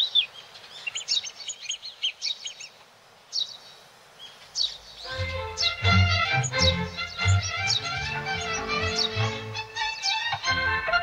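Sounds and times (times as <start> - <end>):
small birds chirping: 0.0 - 11.0
orchestral music with strings: 5.0 - 11.0.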